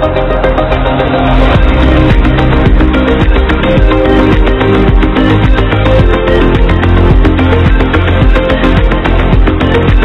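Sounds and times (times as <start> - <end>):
music with beat and strong bass: 0.0 - 10.0.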